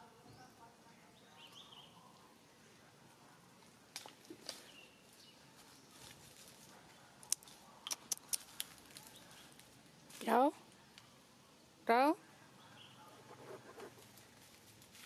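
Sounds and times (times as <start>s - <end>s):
dry leaves and twigs crackling: 3.5s - 11.2s, 13.9s - 15.0s.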